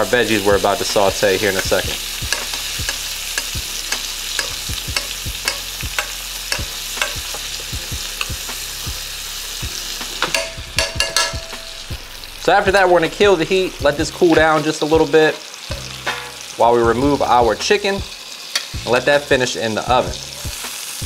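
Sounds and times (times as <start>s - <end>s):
chicken sizzling in butter: 0.0s - 21.0s
metal spoon clicking against pan: 2.3s - 7.5s, 10.2s - 11.7s, 18.5s - 18.8s.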